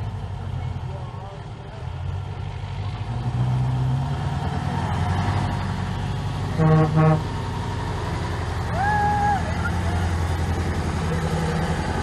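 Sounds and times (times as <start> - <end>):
truck diesel engine pulling away: 0.0 - 12.0
truck horn toots: 6.5 - 7.4.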